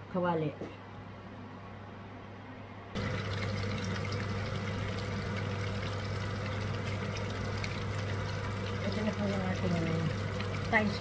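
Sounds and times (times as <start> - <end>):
food sizzling in hot oil: 3.0 - 11.0.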